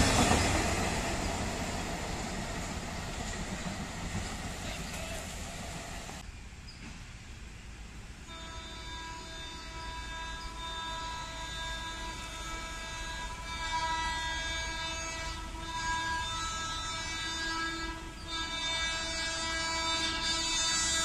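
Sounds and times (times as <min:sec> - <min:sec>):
train horn: 0:08.2 - 0:21.0.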